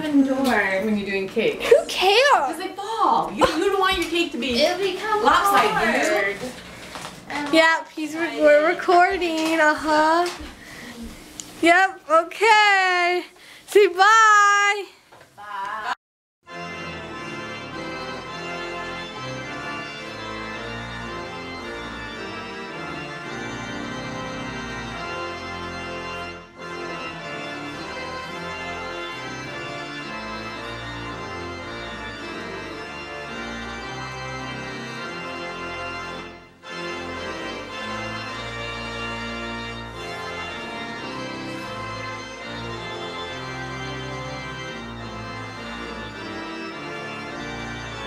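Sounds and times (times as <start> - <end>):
organ playing held chords: 16.5 - 48.0.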